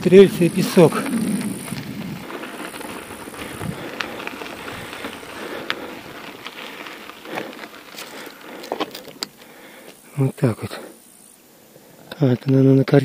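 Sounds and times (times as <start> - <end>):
bicycle tyres crunching on sand: 0.0 - 13.0
bike clicks and knocks: 0.9 - 10.0.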